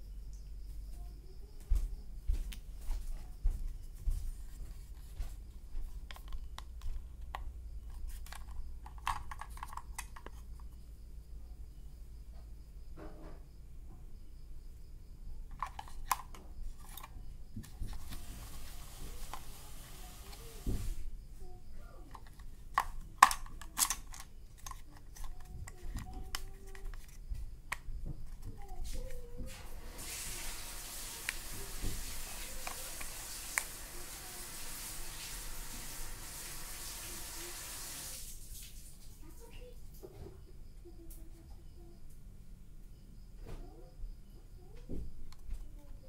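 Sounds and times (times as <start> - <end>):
plastic cover handling noise: 5.8 - 10.8, 15.5 - 20.9, 22.1 - 33.8
small plastic clicks: 6.1 - 10.8, 22.1 - 28.8.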